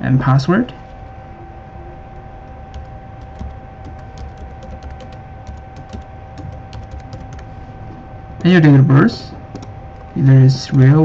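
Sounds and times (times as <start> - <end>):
faint background hum: 0.0 - 11.0
keyboard typing clicks: 2.4 - 7.5, 8.4 - 11.0.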